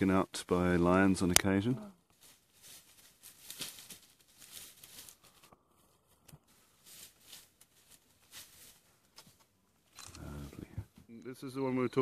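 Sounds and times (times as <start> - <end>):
leaves and branches rustling: 1.2 - 11.1.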